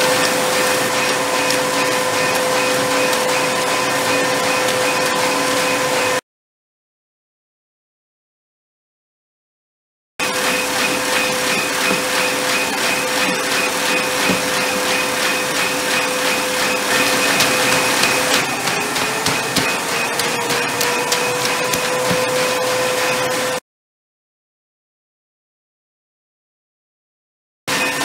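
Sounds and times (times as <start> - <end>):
printer whirring hum: 0.0 - 6.2, 10.2 - 23.6, 27.7 - 28.0.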